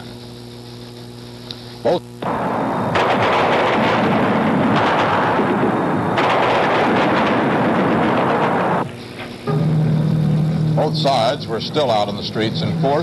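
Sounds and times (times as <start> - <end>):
rapid gunfire: 2.2 - 9.0.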